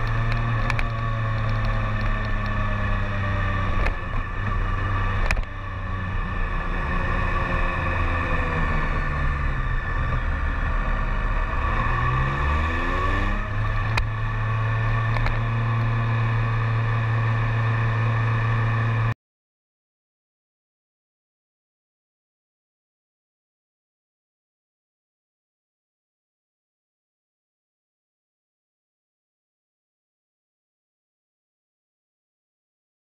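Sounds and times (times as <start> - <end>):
motorcycle engine: 0.0 - 19.2.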